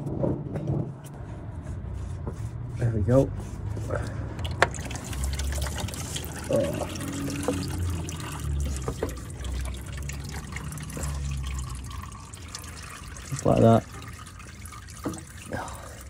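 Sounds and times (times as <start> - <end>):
oil trickling into plastic pan: 4.4 - 16.0.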